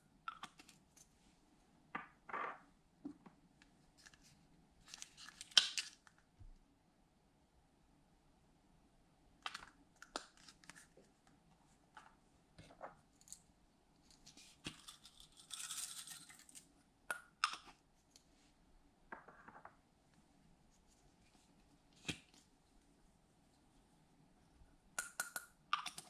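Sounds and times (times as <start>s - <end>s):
plastic tubes clicking and tapping: 25.0s - 26.0s.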